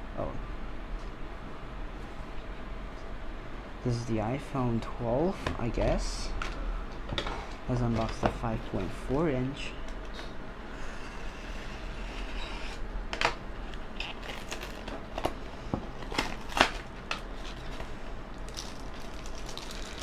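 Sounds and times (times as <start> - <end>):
cardboard tearing and crackling: 14.0 - 15.4, 16.0 - 17.8
plastic film rustling: 14.0 - 20.0.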